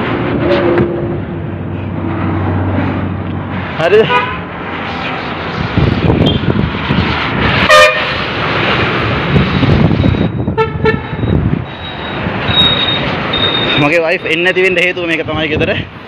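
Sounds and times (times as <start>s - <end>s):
street traffic: 0.0s - 16.0s
vehicle horn beeps: 10.2s - 13.9s.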